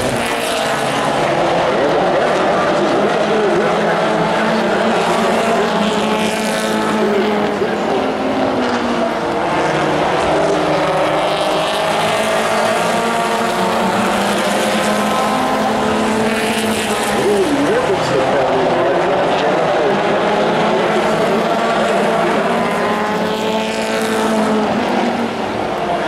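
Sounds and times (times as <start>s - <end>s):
race truck engines running: 0.0s - 26.0s.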